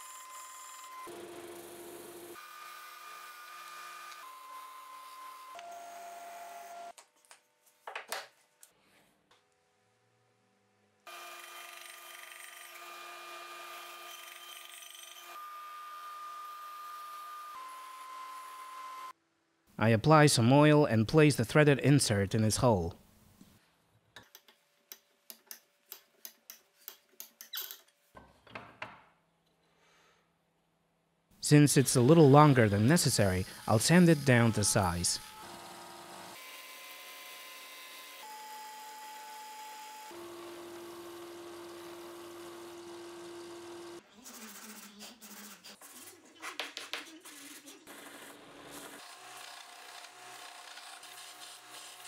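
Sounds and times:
disc sander whirring: 0:31.4 - 0:44.0.

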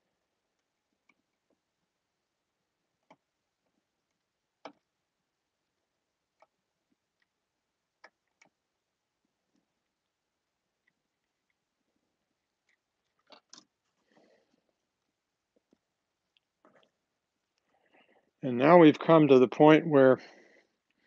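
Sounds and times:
faint clicks of track pieces: 0:00.5 - 0:01.7, 0:02.9 - 0:05.0, 0:06.3 - 0:10.1, 0:10.7 - 0:18.3.

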